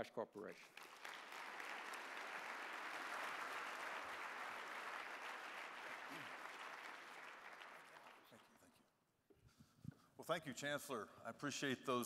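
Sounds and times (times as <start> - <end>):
audience applauding: 0.7 - 8.6.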